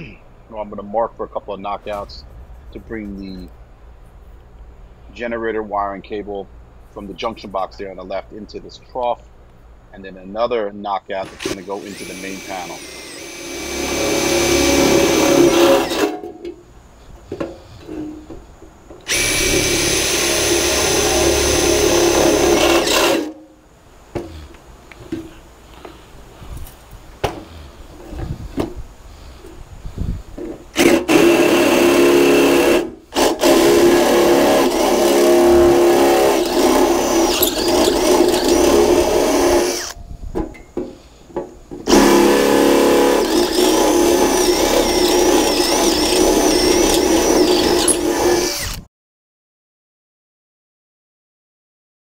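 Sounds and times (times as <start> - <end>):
cordless drill cutting steel: 11.2 - 16.2, 19.1 - 23.4, 30.8 - 40.0, 41.9 - 48.9.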